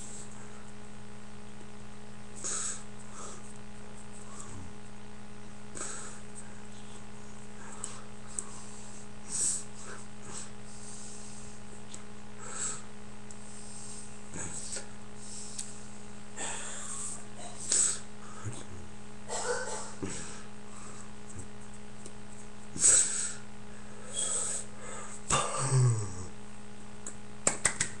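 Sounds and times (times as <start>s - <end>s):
low electrical hum: 0.0s - 28.0s
breathy puffs and sniffs: 7.5s - 11.8s, 12.4s - 18.6s.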